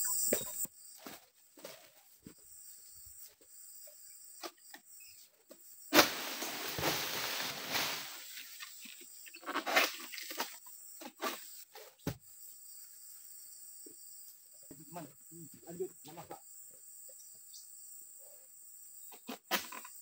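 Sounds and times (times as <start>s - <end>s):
palm fronds rustling and crashing: 5.9s - 10.6s.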